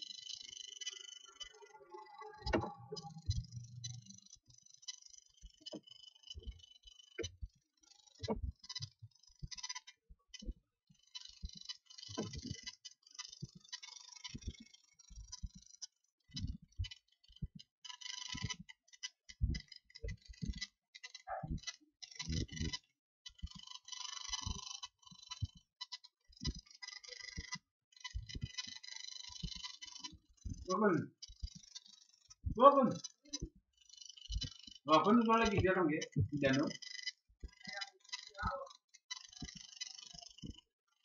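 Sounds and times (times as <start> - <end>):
keyboard typing clicks: 1.2 - 4.1.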